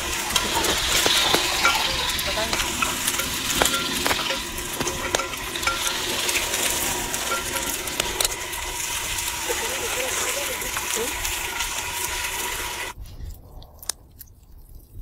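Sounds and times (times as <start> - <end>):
ladle knocking and scraping pot: 0.0 - 11.6
meat sizzling in hot oil: 0.0 - 13.0.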